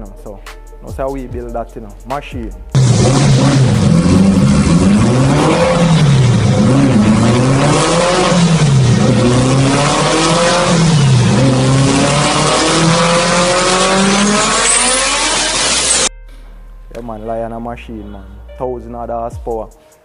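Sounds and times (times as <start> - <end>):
car engine revving: 2.7 - 16.1.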